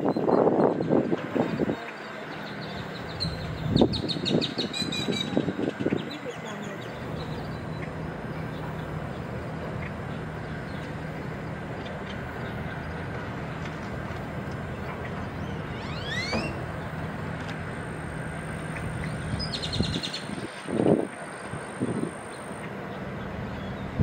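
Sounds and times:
low mechanical hum: 0:00.0 - 0:24.0
outdoor noise: 0:00.0 - 0:24.0
rising high call: 0:15.4 - 0:17.0.

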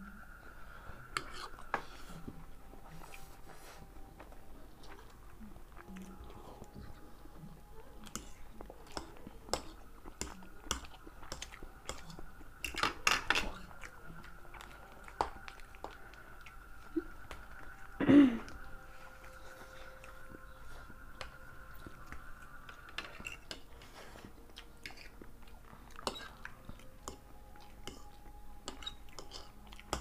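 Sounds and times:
people chewing noodles: 0:00.0 - 0:30.0.

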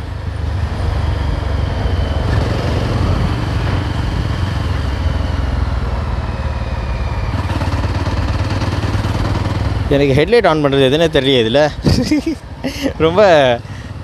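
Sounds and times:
motorcycle engine running: 0:02.2 - 0:10.8.

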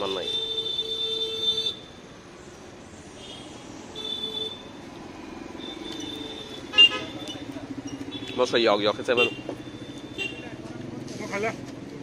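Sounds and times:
engine humming: 0:01.9 - 0:12.0.

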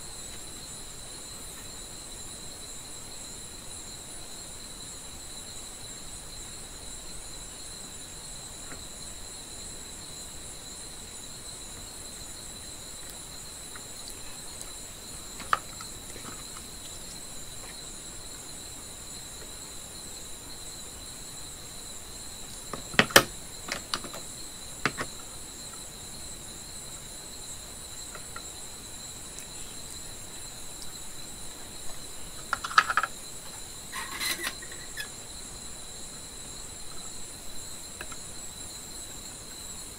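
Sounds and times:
tools and wire clicking: 0:33.9 - 0:35.1.

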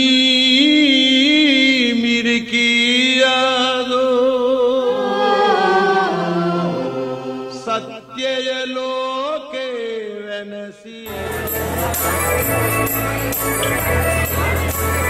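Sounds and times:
choir singing devotional song: 0:04.0 - 0:08.4.

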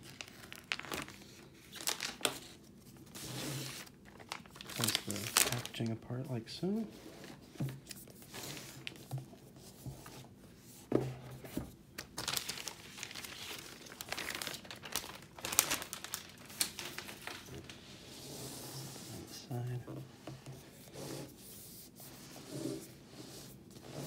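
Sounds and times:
plastic wrap crinkling: 0:00.0 - 0:06.8, 0:11.9 - 0:17.8.

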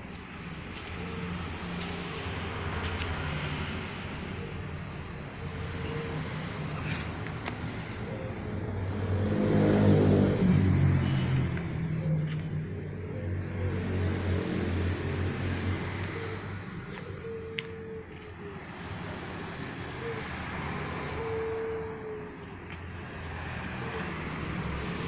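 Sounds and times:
scooter engine idling and revving: 0:00.0 - 0:25.0.

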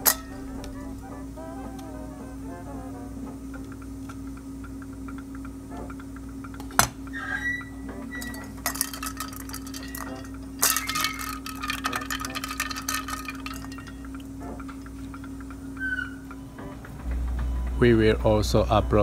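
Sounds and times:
clinks against metal bowl: 0:00.0 - 0:00.5, 0:08.2 - 0:14.2
metal bowl ringing faintly: 0:00.0 - 0:01.0, 0:08.1 - 0:14.3
steady electrical hum: 0:00.0 - 0:19.0.

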